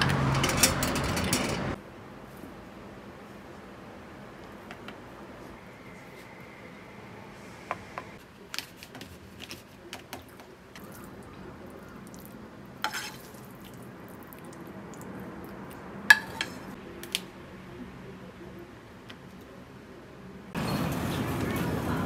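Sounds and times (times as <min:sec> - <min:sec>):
dishes and utensils clinking: 0:12.8 - 0:13.4, 0:16.1 - 0:16.8
dishes clattering: 0:12.8 - 0:13.4, 0:16.1 - 0:16.8.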